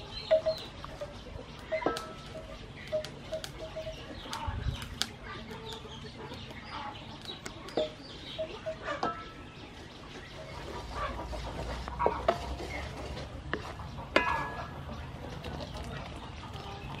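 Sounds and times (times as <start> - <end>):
chickens clucking: 0.0 - 17.0
wooden spatula scraping metal wok: 10.4 - 14.9.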